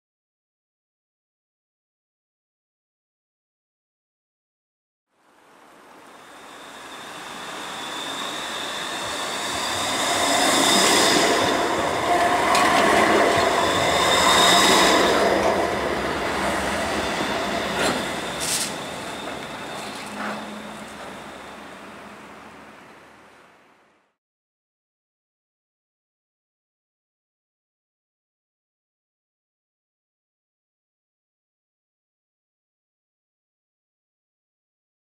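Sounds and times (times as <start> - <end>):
tram rolling on rails: 6.0 - 23.4
thin high whine: 6.0 - 23.6.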